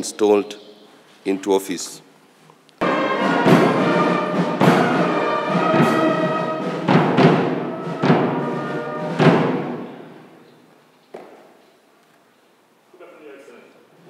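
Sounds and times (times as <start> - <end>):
brass band playing: 2.8 - 10.4
drum strokes: 2.8 - 10.4.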